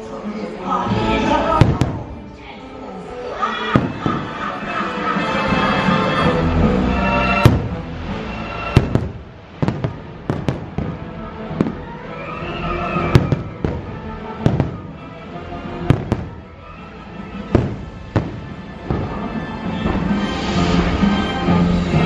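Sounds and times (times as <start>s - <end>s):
music playing: 0.0s - 22.0s
fireworks bangs: 1.5s - 2.2s, 3.6s - 5.8s, 7.2s - 21.3s.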